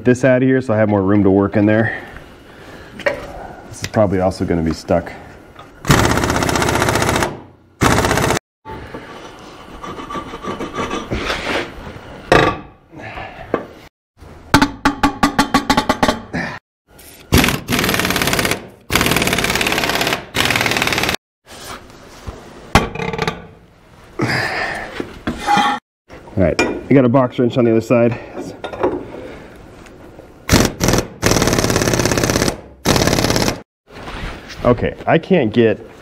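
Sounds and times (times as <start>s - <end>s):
impact wrench hammering: 14.5s - 16.2s.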